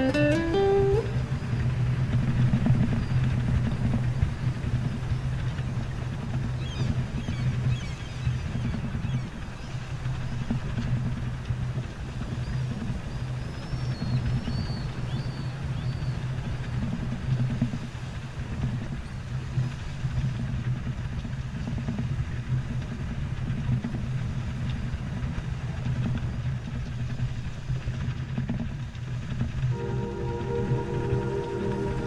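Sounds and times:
bow wave rushing along hull: 0:00.0 - 0:12.9, 0:29.7 - 0:32.0
wind buffeting microphone: 0:00.0 - 0:32.0.

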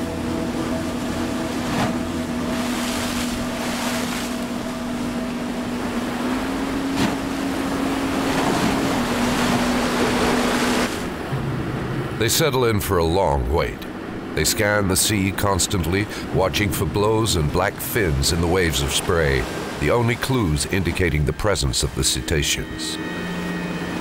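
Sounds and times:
motorboat engine drone: 0:00.0 - 0:24.0
rushing water: 0:00.0 - 0:24.0
wind: 0:00.0 - 0:24.0.

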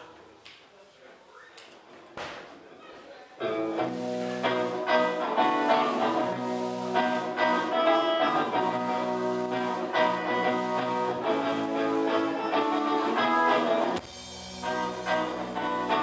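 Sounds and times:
electric guitars: 0:03.4 - 0:16.0
drum kit: 0:03.6 - 0:16.0.

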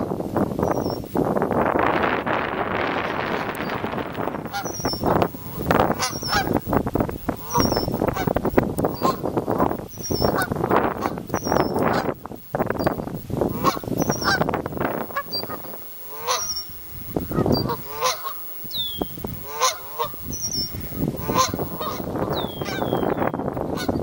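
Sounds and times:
geese honking: 0:02.4 - 0:12.2, 0:13.4 - 0:24.0.

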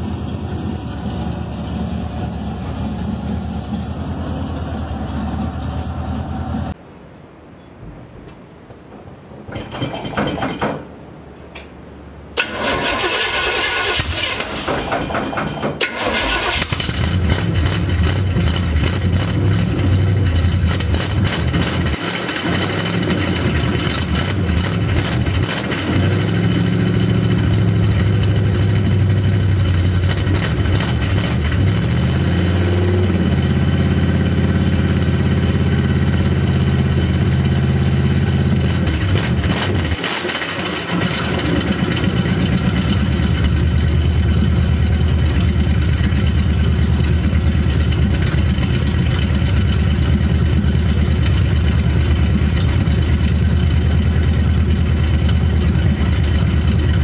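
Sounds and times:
loud engine running unmuffled: 0:00.0 - 0:06.8, 0:13.7 - 0:57.0
engine starter cranking: 0:09.5 - 0:10.6, 0:12.4 - 0:18.8.

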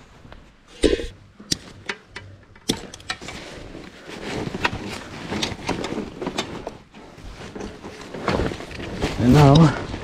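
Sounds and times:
sharp clicks and knocks: 0:00.8 - 0:03.4
bag rustling: 0:03.3 - 0:10.0.

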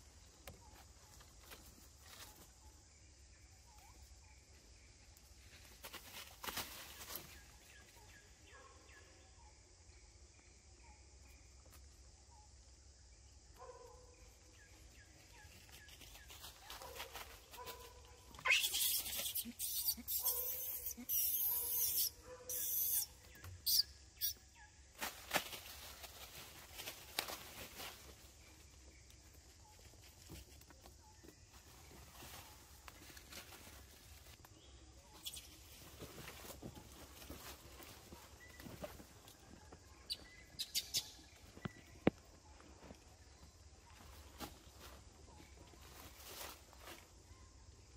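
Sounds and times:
quiet forest background: 0:00.0 - 0:47.9
leaves and branches rustling: 0:00.2 - 0:02.7, 0:04.7 - 0:08.2, 0:15.2 - 0:19.6, 0:24.9 - 0:40.1, 0:42.4 - 0:47.4.

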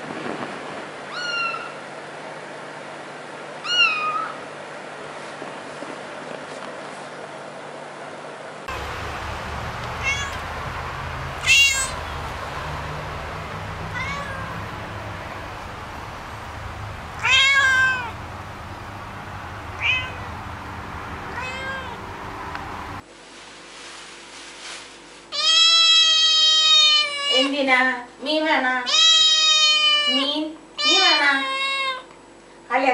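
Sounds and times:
cat meowing: 0:01.1 - 0:01.8, 0:03.6 - 0:04.4, 0:09.7 - 0:18.4, 0:19.6 - 0:20.5, 0:21.3 - 0:22.1, 0:25.4 - 0:27.5, 0:28.9 - 0:32.0
steady low hum: 0:08.7 - 0:23.0
young cat long loud meow: 0:10.0 - 0:10.5, 0:11.4 - 0:12.0, 0:13.8 - 0:14.7, 0:17.2 - 0:18.2, 0:19.8 - 0:20.3, 0:21.3 - 0:22.0, 0:25.4 - 0:27.5, 0:28.9 - 0:32.0.

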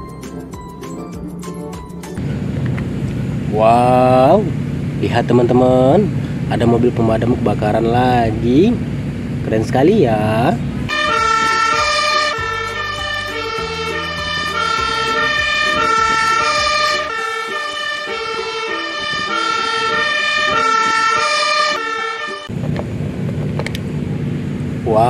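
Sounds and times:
truck engine rumbling: 0:00.0 - 0:25.0
fire engine two-tone siren: 0:10.9 - 0:22.5.

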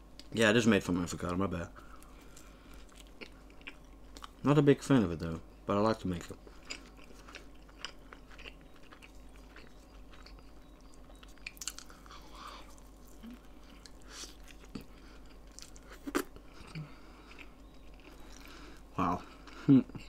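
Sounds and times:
tortilla crunching: 0:01.8 - 0:04.4, 0:06.4 - 0:16.6
chewing with wet mouth clicks: 0:01.9 - 0:04.4, 0:06.4 - 0:18.6.

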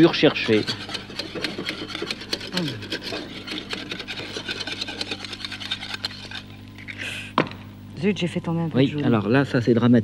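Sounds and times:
whisk scraping a saucepan: 0:00.0 - 0:06.6.

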